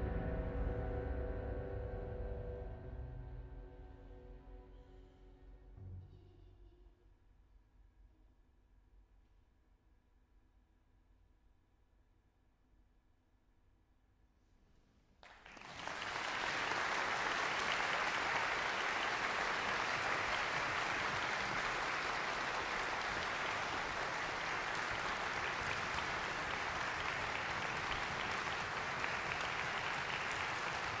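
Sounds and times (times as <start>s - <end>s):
audience applause: 15.2s - 31.0s.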